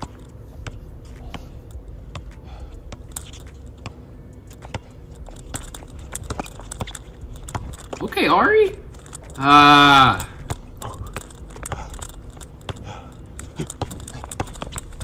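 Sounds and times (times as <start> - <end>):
basketball bouncing on hard court: 4.6 - 8.0, 10.3 - 15.0.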